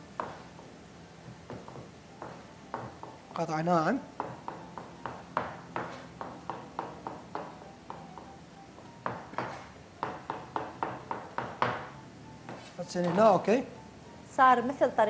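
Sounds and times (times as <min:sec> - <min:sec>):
knife chopping on plastic board: 0:00.2 - 0:00.4, 0:01.5 - 0:03.2, 0:04.2 - 0:08.3, 0:09.0 - 0:13.3.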